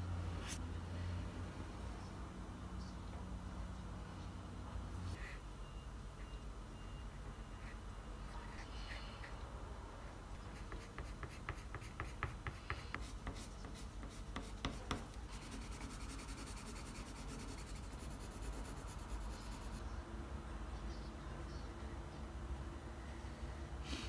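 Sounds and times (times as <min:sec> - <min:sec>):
pen scratching on paper: 0:10.4 - 0:19.8.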